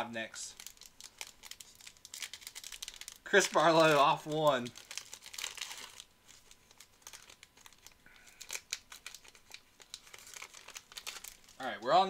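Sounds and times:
wrapper tearing and crinkling: 0:00.5 - 0:11.7.

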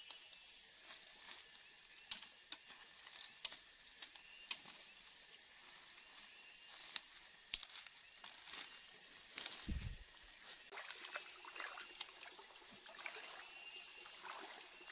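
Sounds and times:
high forest hiss: 0:00.0 - 0:14.9
twigs and leaves snapping: 0:01.2 - 0:05.0, 0:06.7 - 0:10.1.

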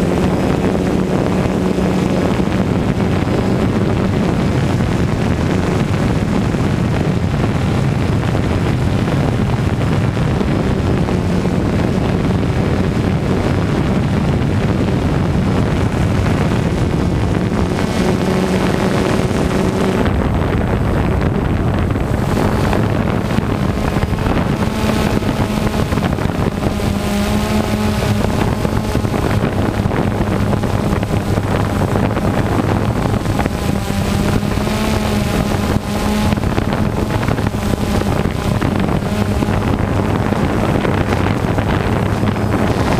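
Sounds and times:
drone propellers humming: 0:00.0 - 0:42.9
wind rushing over microphone: 0:00.0 - 0:42.9.

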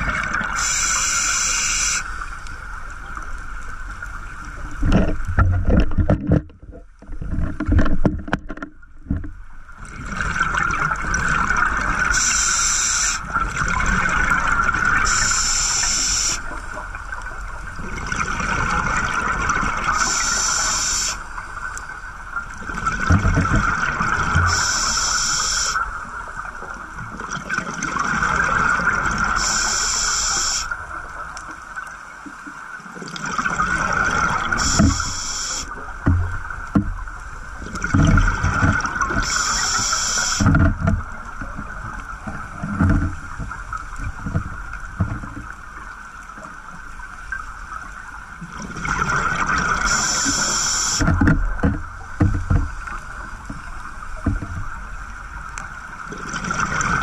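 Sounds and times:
regulator hissing inhalations: 0:00.6 - 0:02.2, 0:12.2 - 0:13.2, 0:15.1 - 0:16.4, 0:20.0 - 0:21.2, 0:24.5 - 0:25.8, 0:29.4 - 0:30.7, 0:34.6 - 0:35.7, 0:39.3 - 0:40.5, 0:49.8 - 0:51.0.

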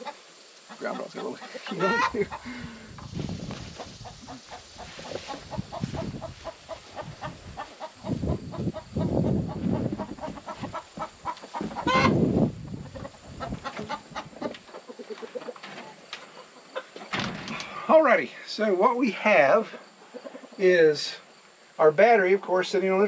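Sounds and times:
chickens clucking: 0:00.0 - 0:17.9, 0:18.6 - 0:21.6.

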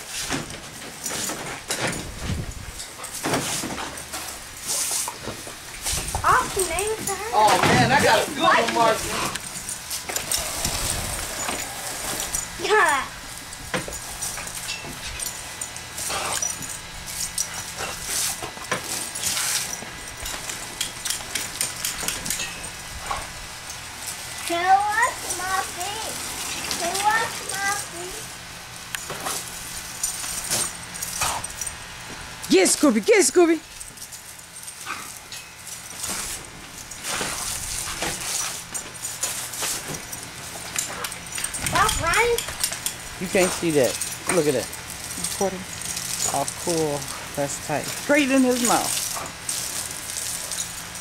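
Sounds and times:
hose water spraying: 0:00.0 - 0:51.0
hose spray hissing: 0:08.7 - 0:14.6.

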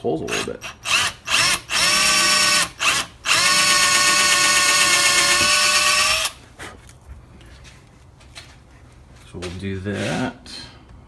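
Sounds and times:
cordless drill whining: 0:00.3 - 0:06.4.

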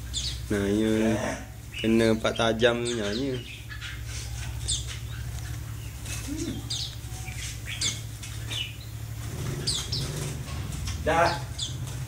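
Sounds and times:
birds chirping: 0:00.0 - 0:12.0
wings fluttering in a cage: 0:03.2 - 0:12.0.

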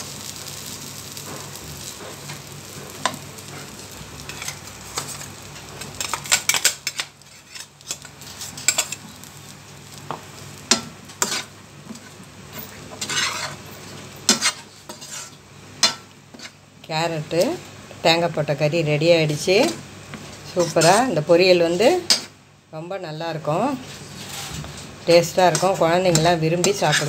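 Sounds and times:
light sizzle: 0:00.0 - 0:27.0
spoon scraping frying pan: 0:01.4 - 0:09.1, 0:10.7 - 0:13.6, 0:14.2 - 0:16.6, 0:19.3 - 0:21.2, 0:23.8 - 0:27.0.

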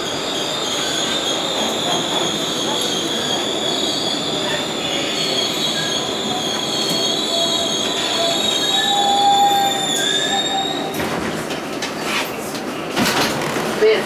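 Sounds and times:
high-pitched brake squeal: 0:00.1 - 0:11.0.

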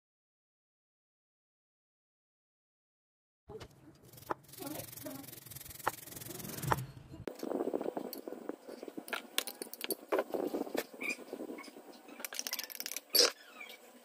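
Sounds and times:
rustling: 0:03.5 - 0:07.3
low hum: 0:03.5 - 0:09.0
rubbing and scraping handling noise: 0:03.5 - 0:11.0
steady hiss: 0:03.9 - 0:06.8.

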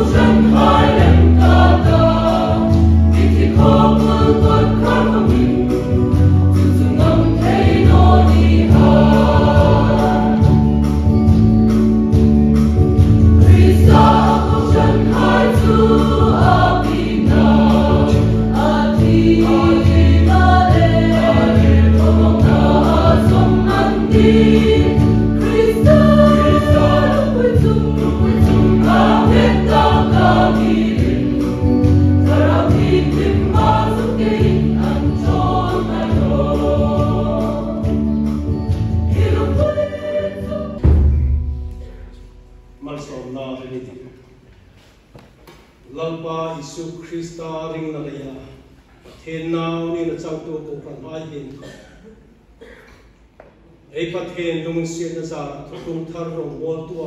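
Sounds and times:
group singing a hymn: 0:00.0 - 0:10.9, 0:13.2 - 0:42.0
instrumental accompaniment: 0:00.0 - 0:43.8
held low note: 0:40.8 - 0:43.4.

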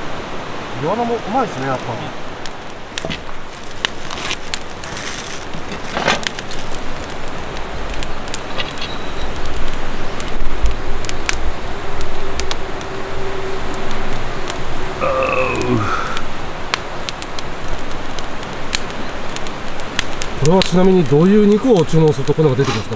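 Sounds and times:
sharp crackles and clicks: 0:01.4 - 0:22.9.

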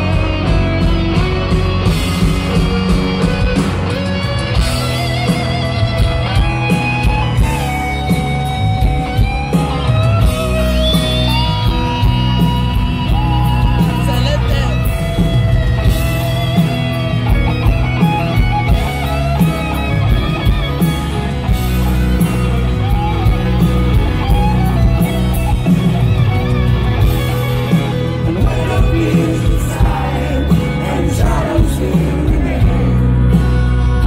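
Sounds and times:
electric guitar solo: 0:00.0 - 0:28.9
live rock band playing: 0:00.0 - 0:34.0.

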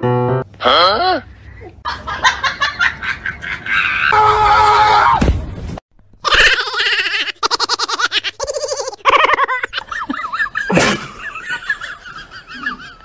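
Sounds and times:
person giggling: 0:07.5 - 0:11.8.

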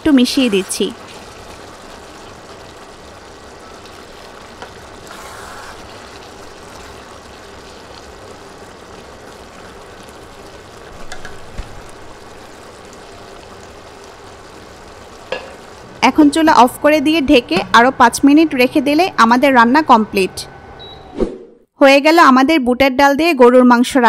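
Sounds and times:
curry simmering and bubbling: 0:00.0 - 0:18.2.

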